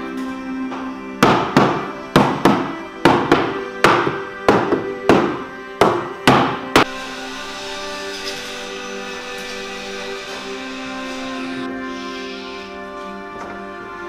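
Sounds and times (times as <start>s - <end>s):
background music: 0.0s - 14.0s
mallet knocking on wood: 0.7s - 6.9s.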